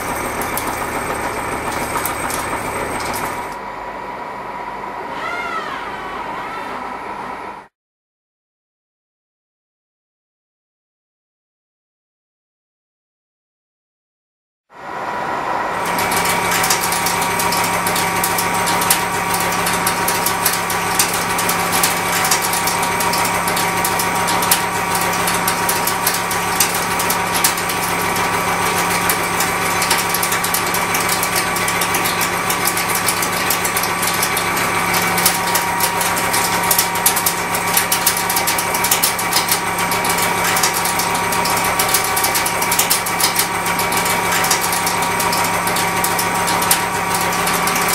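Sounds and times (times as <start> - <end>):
milling cutter humming: 0.0 - 5.0, 14.8 - 47.9
crackle of metal chips: 15.9 - 47.9.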